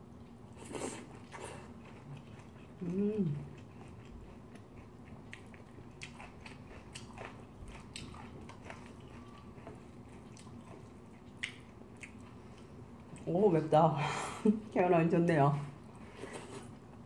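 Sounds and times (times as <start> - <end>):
person chewing food: 0.1 - 13.2.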